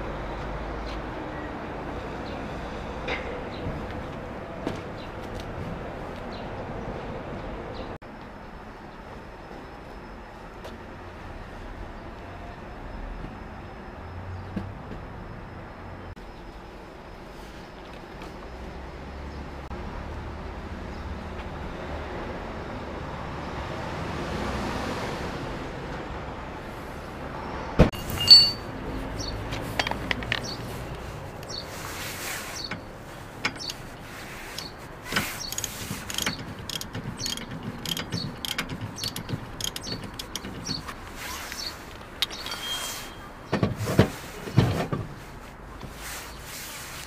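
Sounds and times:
outdoor background hum: 0.0s - 47.0s
metal clinks and clicks: 28.0s - 28.7s, 35.4s - 40.8s.

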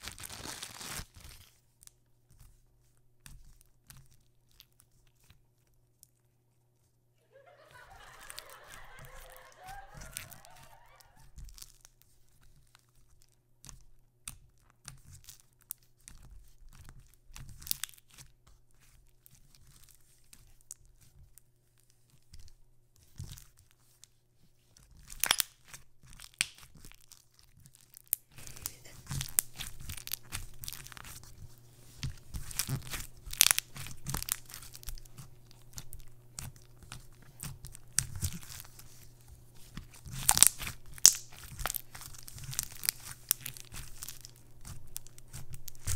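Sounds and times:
slime squelching and popping: 28.1s - 39.0s, 39.6s - 45.9s.

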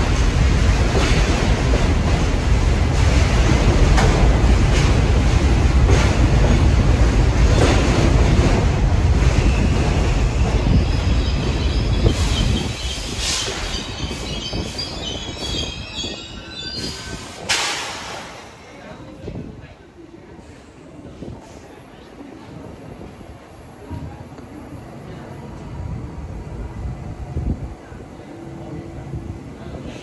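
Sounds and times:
subway train rumbling: 0.0s - 30.0s
high metallic squeals: 9.6s - 17.4s.

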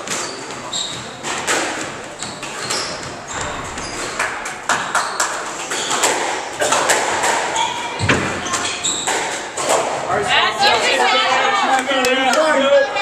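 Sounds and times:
shoes squeaking on hardwood floor: 0.0s - 10.0s.

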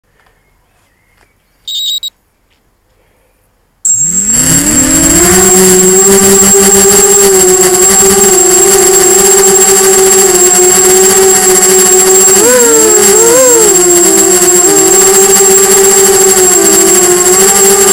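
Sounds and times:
short high beeps: 1.7s - 2.1s, 3.9s - 4.9s
quadcopter motors buzzing: 3.9s - 17.9s.

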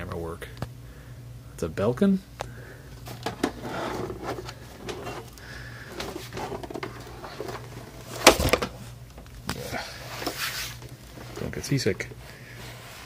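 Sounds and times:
steady low hum: 0.0s - 13.0s
soft rubbing handling noise: 3.0s - 13.0s.

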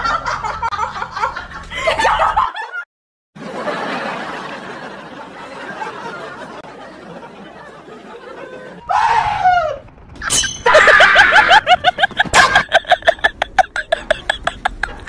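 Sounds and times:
falling pitched cry: 8.8s - 11.5s
fast laughing cries: 10.6s - 15.0s.

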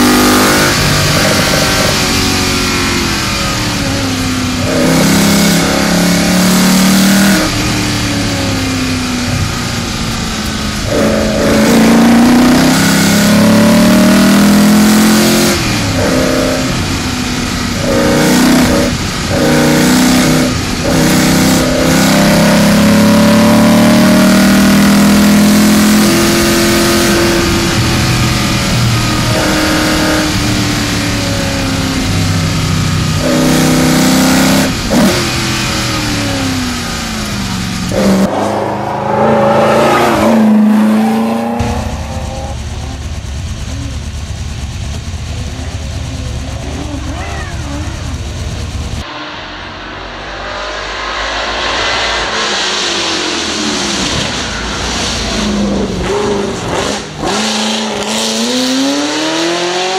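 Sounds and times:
car engine revving: 0.0s - 59.9s
wind and tyre noise: 0.0s - 59.9s.

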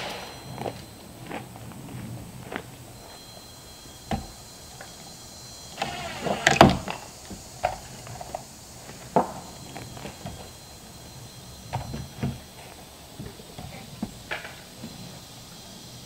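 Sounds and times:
cordless drill driving screw into wood: 5.8s - 7.1s.

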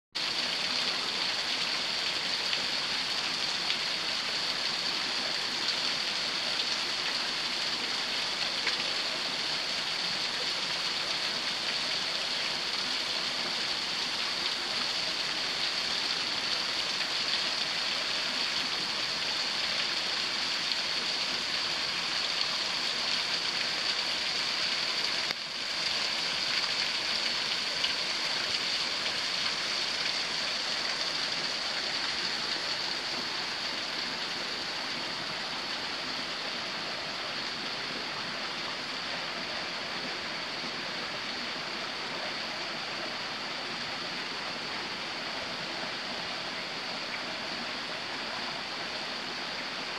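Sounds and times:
waterfall splashing into pool: 0.2s - 36.4s.

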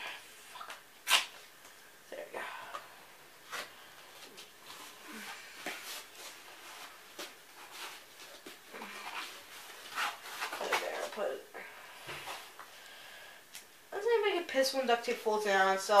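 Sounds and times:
tape and cardboard crinkling: 5.6s - 11.3s.

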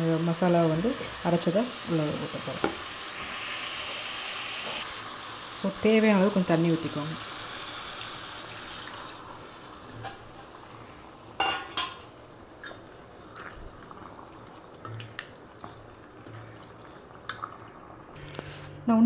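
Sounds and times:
water pouring into a pan: 6.2s - 9.9s.

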